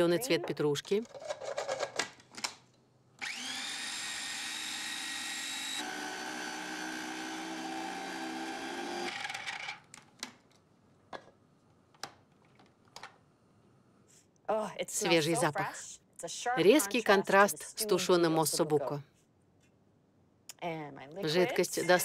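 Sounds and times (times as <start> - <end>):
food processor motor running: 3.2 - 9.6.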